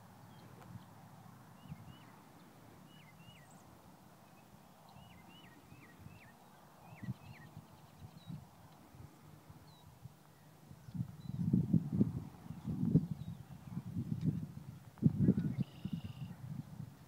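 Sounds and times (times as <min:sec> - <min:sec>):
small bird chirping: 0:15.1 - 0:16.3.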